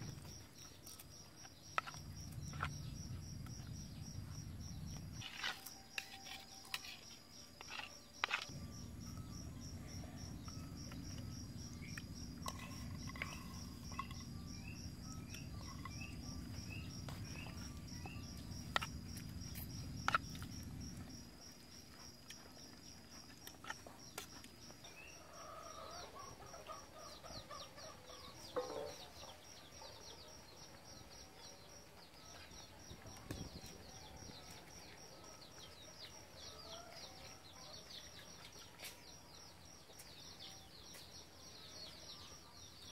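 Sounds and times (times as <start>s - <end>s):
high insect whine: 1.8s - 23.3s
low hum: 8.5s - 21.4s.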